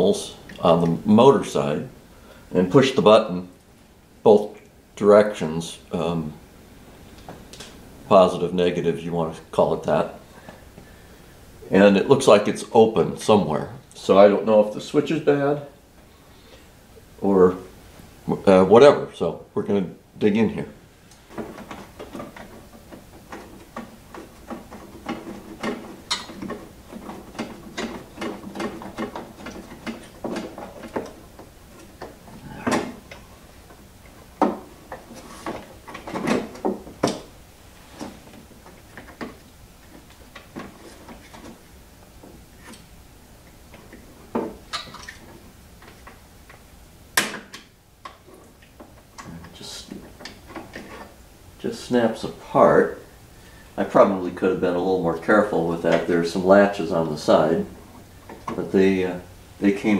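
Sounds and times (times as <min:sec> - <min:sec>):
plastic clicks knocks and rattles: 0:21.3 - 0:32.2.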